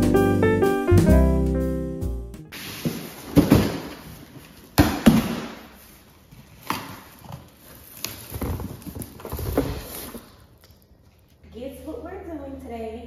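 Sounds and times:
cardboard rustling: 2.5s - 4.8s, 5.9s - 10.4s.

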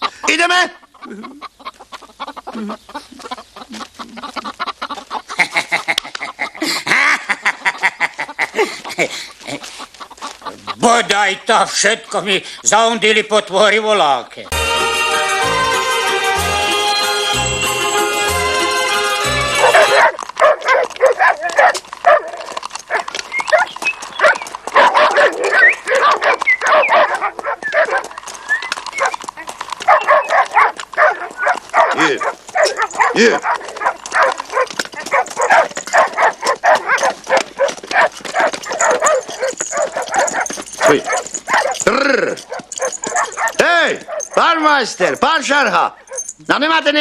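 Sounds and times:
hens cackling and squawking: 0.0s - 12.8s, 17.1s - 44.5s
dogs barking and yelping: 0.9s - 10.8s, 18.5s - 46.4s
high rising dog yelps: 19.5s - 44.5s, 45.9s - 46.4s.

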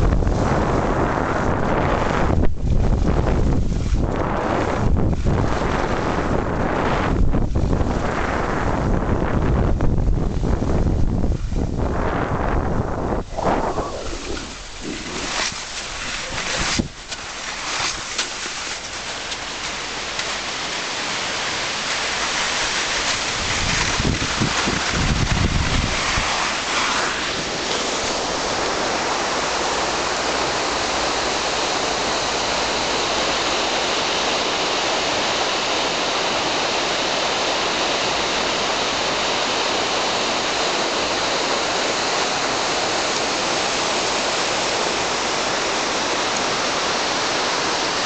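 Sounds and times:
wind buffeting microphone: 0.0s - 37.4s
stream rushing over rocks: 0.0s - 48.0s.

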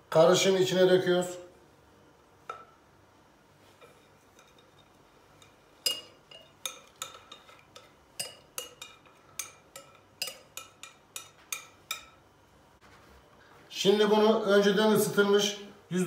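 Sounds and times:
whisk clinking against glass bowl: 3.8s - 12.2s.

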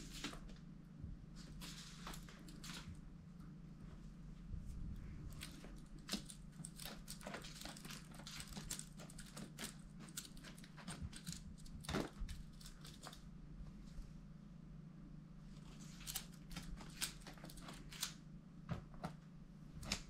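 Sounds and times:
cat toy rustling on rug: 0.0s - 0.6s, 1.3s - 3.1s
steady low hum: 0.0s - 20.0s.

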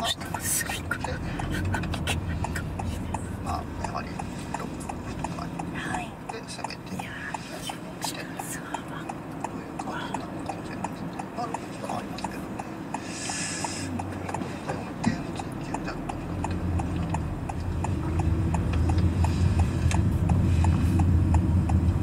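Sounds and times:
car engine and road noise: 0.0s - 22.0s
turn signal ticking: 0.0s - 22.0s
short hiss: 13.0s - 13.9s.

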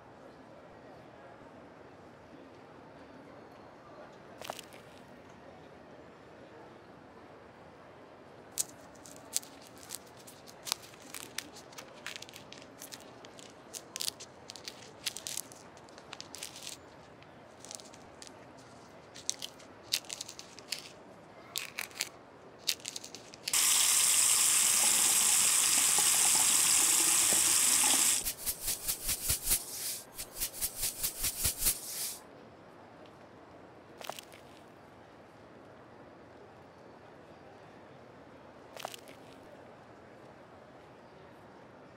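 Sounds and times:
tap water running: 23.5s - 28.4s.

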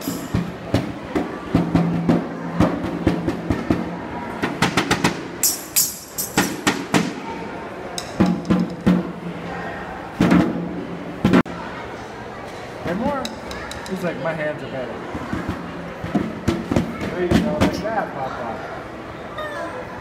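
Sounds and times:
drums struck: 0.0s - 7.2s, 8.2s - 9.2s, 10.2s - 11.4s.

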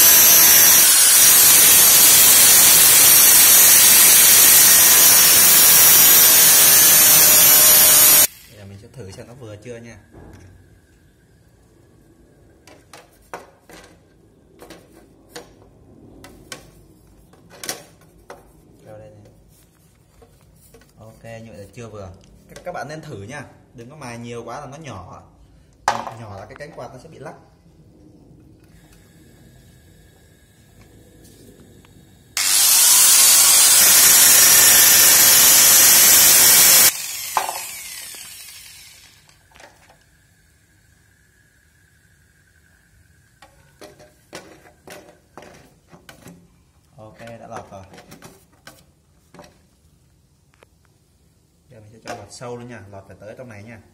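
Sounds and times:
power grinder grinding metal: 0.0s - 8.4s, 32.4s - 40.0s
grinder winding down: 0.0s - 8.6s, 32.4s - 43.3s.

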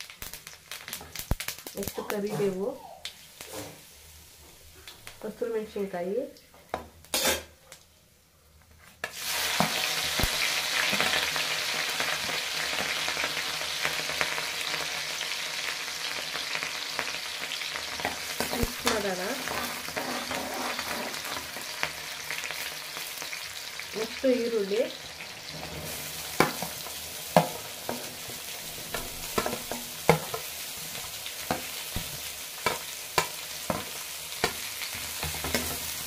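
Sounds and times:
chillies sizzling in hot oil: 0.0s - 7.9s, 9.0s - 36.0s.

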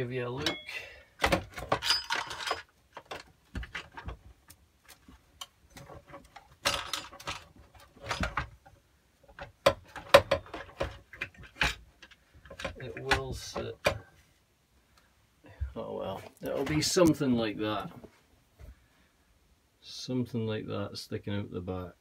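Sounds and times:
metal clicks and knocks: 0.4s - 14.1s.

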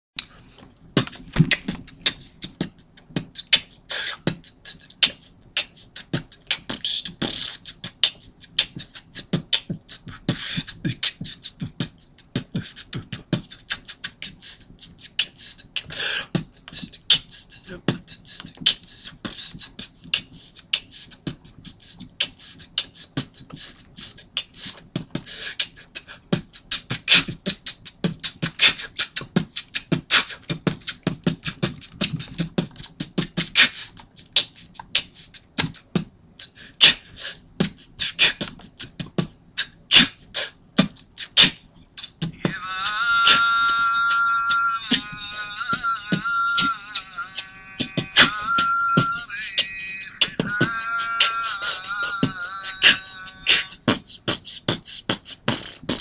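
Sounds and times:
man beatboxing: 1.0s - 56.0s.

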